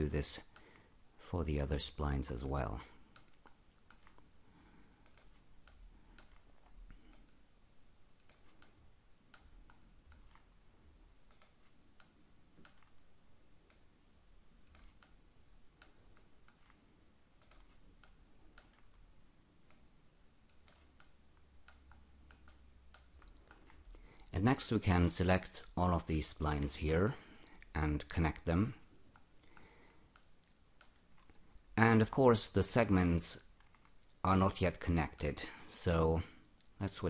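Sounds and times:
low room hum: 0:00.0 - 0:37.0
computer mouse clicking: 0:02.4 - 0:04.3, 0:05.0 - 0:07.4, 0:08.2 - 0:10.5, 0:11.2 - 0:13.0, 0:13.6 - 0:13.9, 0:14.6 - 0:15.2, 0:15.8 - 0:16.8, 0:17.4 - 0:19.0, 0:19.6 - 0:19.9, 0:20.5 - 0:24.3, 0:28.5 - 0:31.4.

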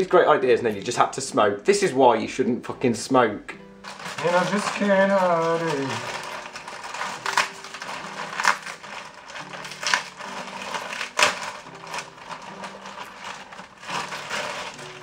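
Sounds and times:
plastic bag tearing and rustling: 0:03.8 - 0:15.0.

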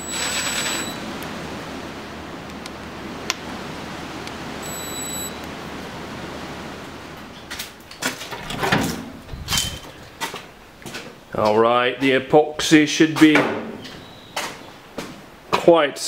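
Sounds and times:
shop background hiss: 0:00.0 - 0:01.2, 0:04.6 - 0:05.4.

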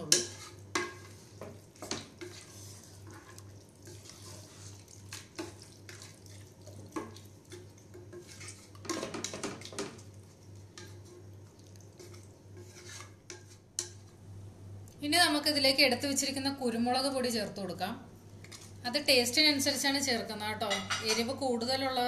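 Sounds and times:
wet sloshing stir: 0:00.1 - 0:13.6.

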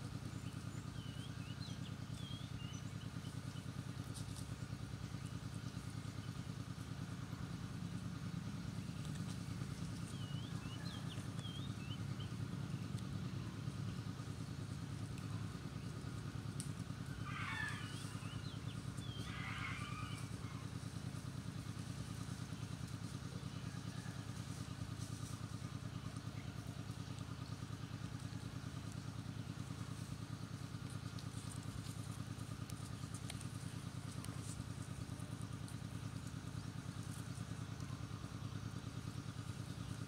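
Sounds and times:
small engine idling: 0:00.0 - 0:40.0
faint ticks: 0:08.8 - 0:10.1, 0:12.8 - 0:13.3, 0:16.5 - 0:17.2, 0:30.7 - 0:37.9.

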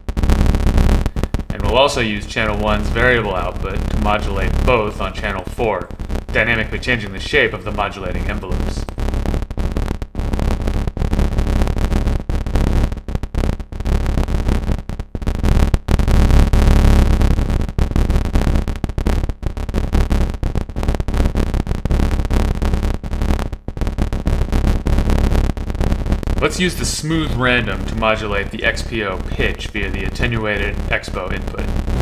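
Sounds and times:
buzzing stuttering synthesizer: 0:21.2 - 0:32.0.

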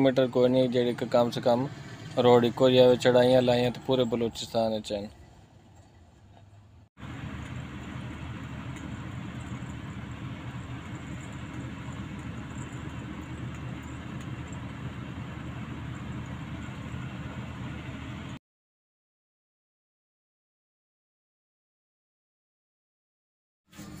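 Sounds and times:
road and wind noise: 0:00.0 - 0:18.4
truck engine drone: 0:00.0 - 0:18.4.

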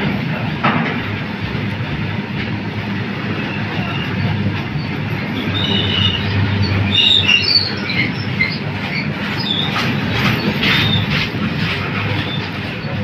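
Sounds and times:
freight train wheels rumbling on rails: 0:00.0 - 0:13.0
high squeaks: 0:03.5 - 0:11.2.

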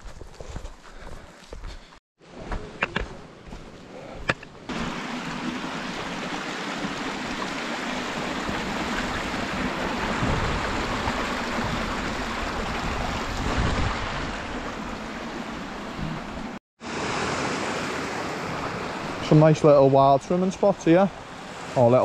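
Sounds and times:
mountain stream rushing: 0:04.7 - 0:22.0.

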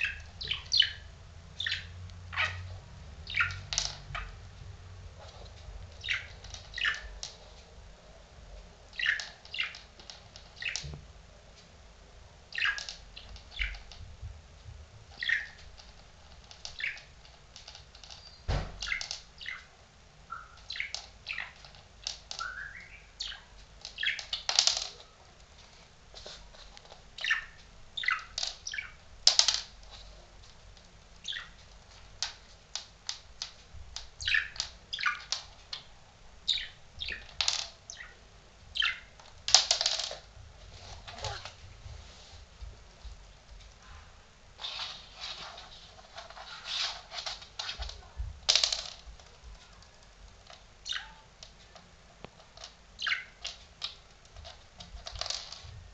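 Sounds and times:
budgerigar chirping: 0:00.0 - 0:04.4, 0:06.0 - 0:07.2, 0:09.0 - 0:09.8, 0:10.6 - 0:10.8, 0:12.5 - 0:13.9, 0:15.2 - 0:15.6, 0:16.8 - 0:17.1, 0:18.2 - 0:19.7, 0:20.3 - 0:21.6, 0:22.3 - 0:24.6, 0:27.2 - 0:29.0, 0:31.2 - 0:31.6, 0:34.2 - 0:35.4, 0:36.5 - 0:37.3, 0:37.9 - 0:38.2, 0:38.8 - 0:39.1, 0:50.8 - 0:51.3, 0:53.0 - 0:53.5.

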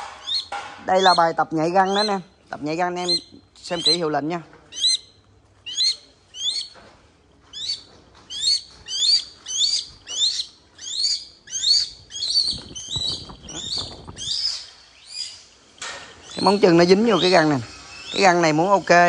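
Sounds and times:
wings fluttering: 0:07.6 - 0:15.0.

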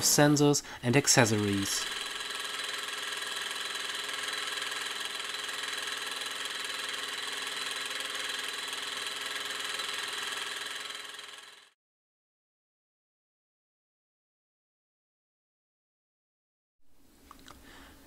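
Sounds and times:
engine mechanical whir: 0:01.3 - 0:11.8.

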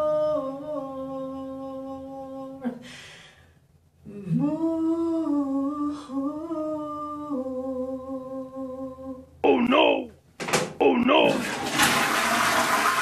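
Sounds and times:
man humming: 0:00.6 - 0:02.9, 0:08.3 - 0:10.2, 0:10.8 - 0:11.4
breath: 0:02.8 - 0:03.7.

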